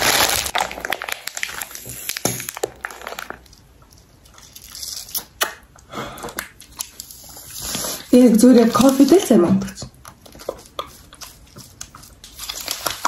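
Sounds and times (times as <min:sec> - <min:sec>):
plastic pouch crinkling: 0:00.0 - 0:05.4, 0:06.8 - 0:13.0.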